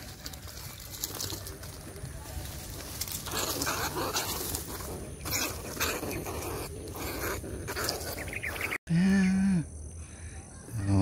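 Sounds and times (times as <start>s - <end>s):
footsteps through tall grass: 0.0s - 5.2s.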